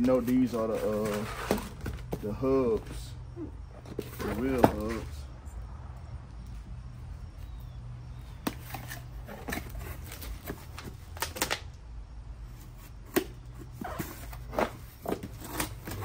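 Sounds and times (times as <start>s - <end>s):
cardboard boxes rustling and tapping: 0.0s - 3.2s, 3.8s - 5.2s, 8.3s - 11.5s, 12.6s - 16.0s.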